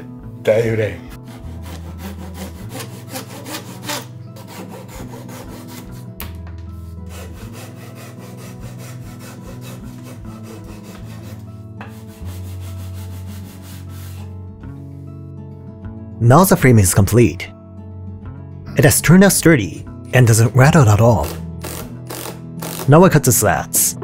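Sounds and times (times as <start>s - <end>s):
soft background music: 0.0s - 24.0s
hand tool scraping wood: 1.2s - 6.1s, 7.0s - 14.3s.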